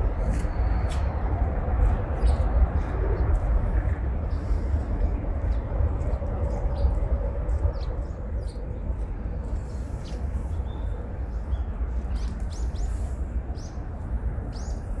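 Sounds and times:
steady low rumble: 0:00.0 - 0:15.0
small birds chirping: 0:04.2 - 0:15.0.

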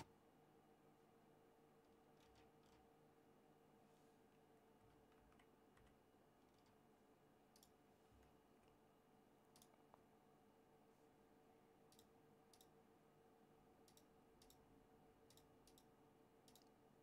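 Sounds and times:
computer mouse clicks: 0:02.2 - 0:02.9, 0:07.5 - 0:08.8, 0:09.5 - 0:10.0, 0:11.9 - 0:12.8, 0:13.8 - 0:16.8.

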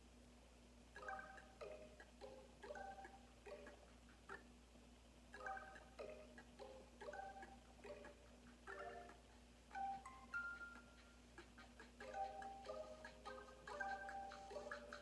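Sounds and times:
faint steady hum: 0:00.0 - 0:15.0
slow relaxation music: 0:05.4 - 0:15.0.

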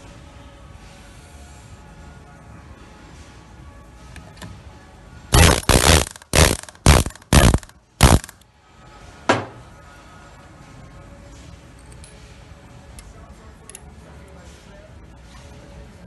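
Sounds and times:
air-powered pin puller hammering: 0:05.4 - 0:08.4.

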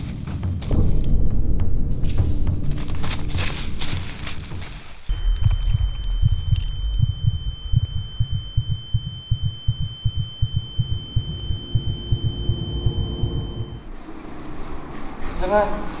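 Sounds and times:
heartbeat thumps: 0:00.0 - 0:13.9
high-pitched ringing tone: 0:05.1 - 0:13.9.

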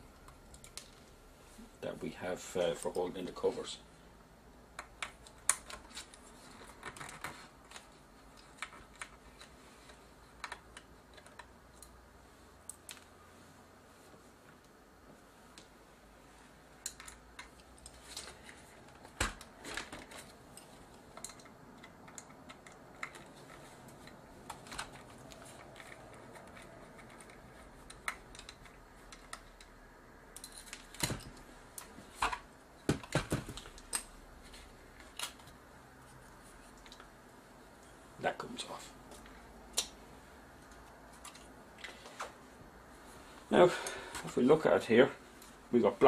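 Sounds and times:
plastic parts knocking and rattling: 0:04.7 - 0:11.6, 0:16.8 - 0:29.7, 0:30.4 - 0:35.6.

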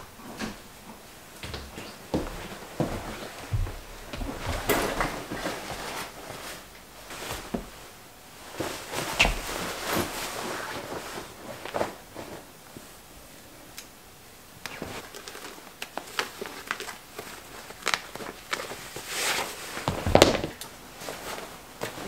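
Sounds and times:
clothing rustling: 0:00.5 - 0:13.0, 0:14.6 - 0:22.0.

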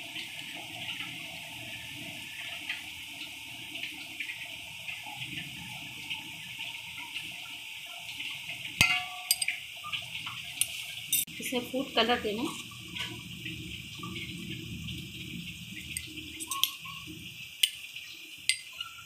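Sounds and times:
spoon clicking against bowl: 0:08.8 - 0:09.6, 0:15.9 - 0:16.8, 0:18.5 - 0:18.7.

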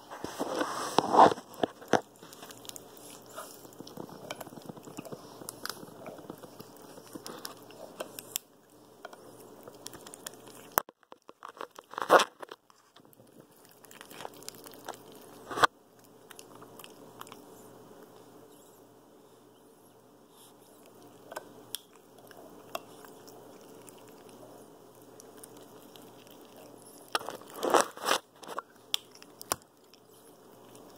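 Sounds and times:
rubber toy crackling rubs: 0:00.0 - 0:08.4, 0:27.0 - 0:28.6.

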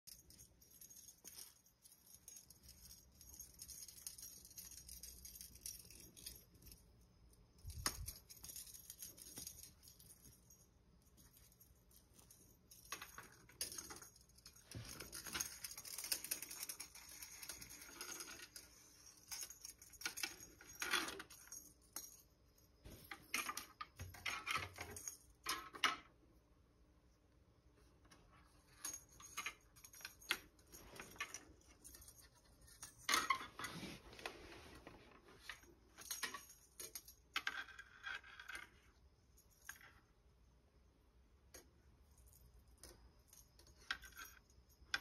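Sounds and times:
cat toy rustling on rug: 0:33.5 - 0:35.5.

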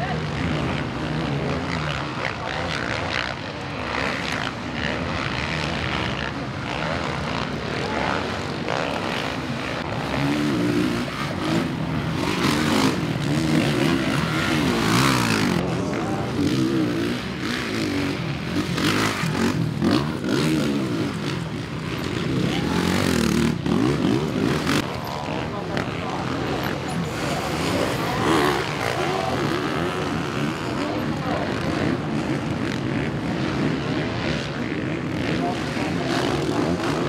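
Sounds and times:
motocross bikes revving past: 0:00.0 - 0:37.0.

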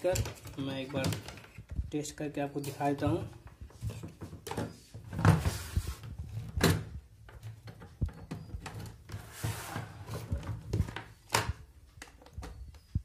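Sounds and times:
plastic knocks and clicks: 0:06.4 - 0:09.2, 0:10.3 - 0:13.0.

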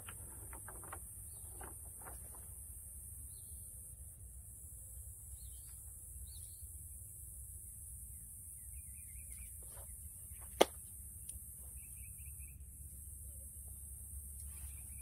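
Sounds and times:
faint chirps: 0:11.6 - 0:15.0.

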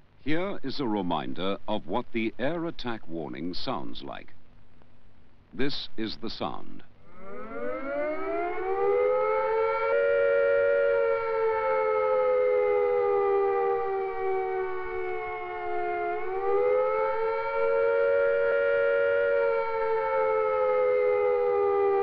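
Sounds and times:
air-raid siren: 0:07.0 - 0:22.0.

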